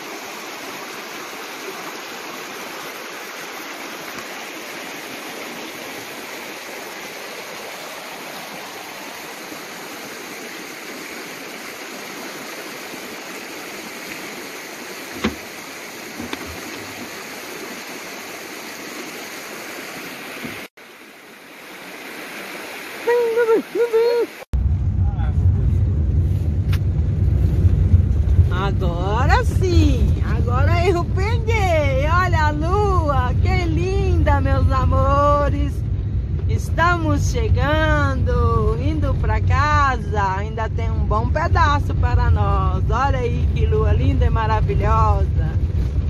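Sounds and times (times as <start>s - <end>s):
river rushing over rocks: 0.0s - 24.5s.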